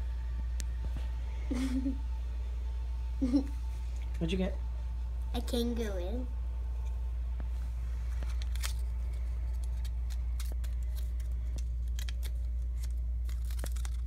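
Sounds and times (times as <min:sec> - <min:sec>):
steady low hum: 0:00.0 - 0:14.0
paper crinkling: 0:08.0 - 0:14.0.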